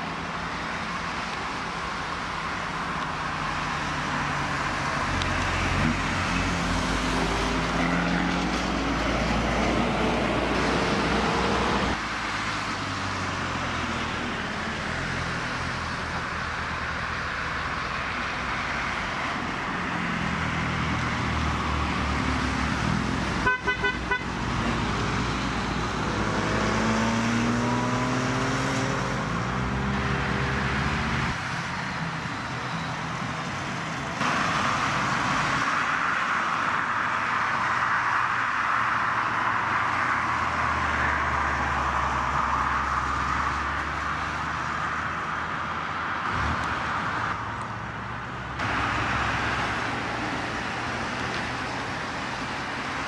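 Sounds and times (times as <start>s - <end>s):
cars driving past: 0.0s - 53.0s
engines revving: 0.0s - 53.0s
car horn toots: 23.4s - 24.3s.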